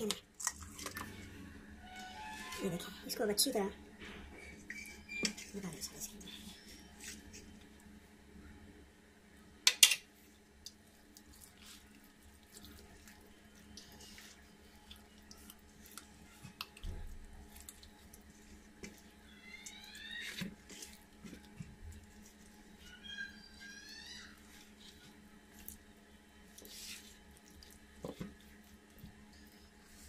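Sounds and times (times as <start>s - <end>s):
hands squelching paste into chicken: 10.6s - 30.0s.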